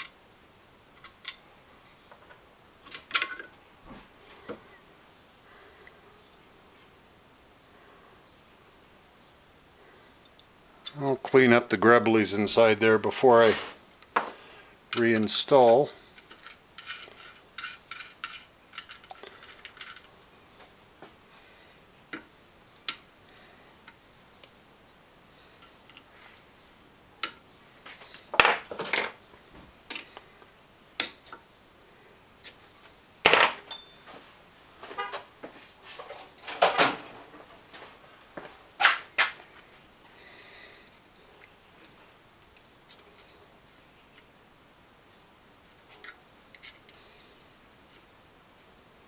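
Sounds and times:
metal parts clinking and knocking: 16.2s - 20.1s.

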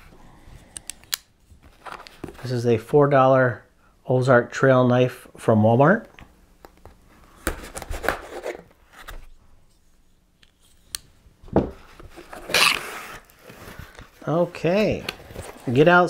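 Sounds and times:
cardboard flap tearing open: 12.3s - 13.3s.

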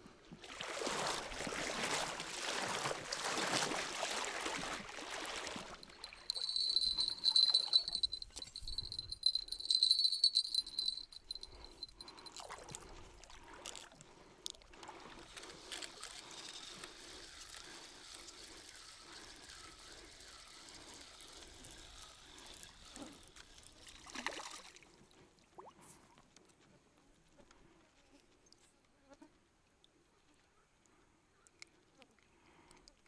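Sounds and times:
water lapping around legs: 0.3s - 26.1s
fish splashing: 0.5s - 12.7s
high ringing tone: 5.8s - 12.1s
fishing reel cranking: 5.8s - 12.5s, 15.2s - 24.5s.

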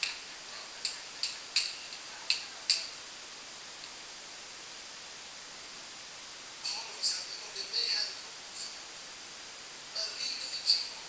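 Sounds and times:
hand claps: 0.8s - 2.9s.

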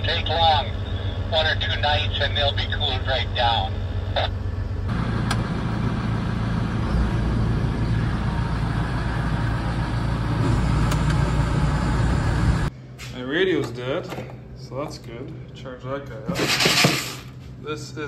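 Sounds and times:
cab hum: 0.0s - 12.7s.

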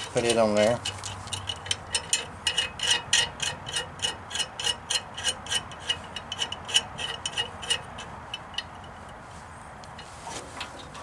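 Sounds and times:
ratchet wrench clicking: 0.3s - 8.9s.

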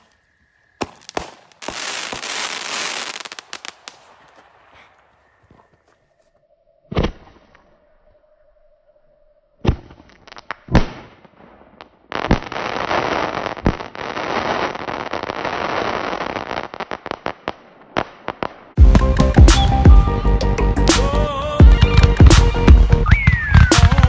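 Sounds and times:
firework crackling: 0.8s - 4.7s, 12.1s - 18.8s
firework bangs: 0.8s - 4.8s, 21.7s - 24.0s.

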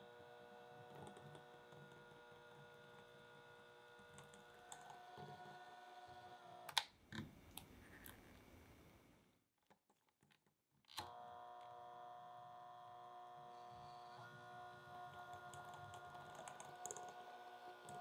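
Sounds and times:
hand mixer motor whining: 0.0s - 6.8s, 11.0s - 18.0s.

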